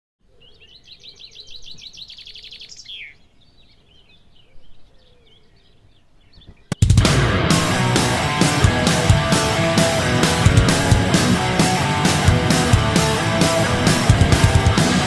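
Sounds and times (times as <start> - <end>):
small birds chirping: 0.2 - 7.2.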